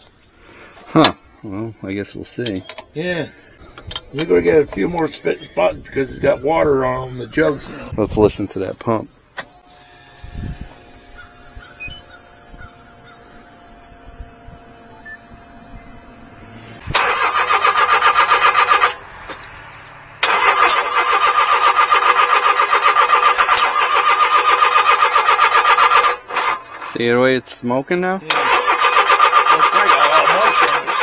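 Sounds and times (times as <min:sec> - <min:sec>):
fuel pump humming: 0:09.3 - 0:27.4, 0:28.2 - 0:31.0
engine cranking: 0:16.8 - 0:27.1, 0:28.3 - 0:31.0.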